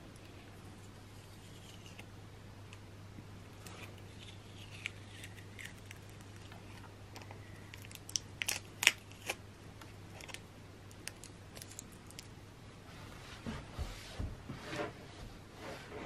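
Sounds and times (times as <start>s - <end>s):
faint steady hum: 0.0s - 16.0s
tape clicks and crackles: 3.6s - 12.4s.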